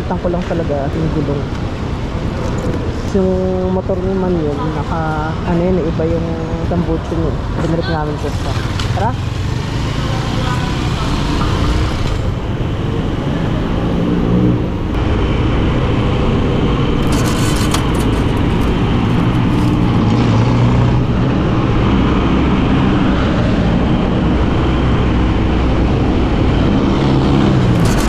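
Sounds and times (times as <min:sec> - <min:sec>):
road and traffic noise: 0:00.0 - 0:28.0
motorcycle engine running: 0:08.2 - 0:13.3, 0:15.0 - 0:22.0, 0:25.9 - 0:28.0.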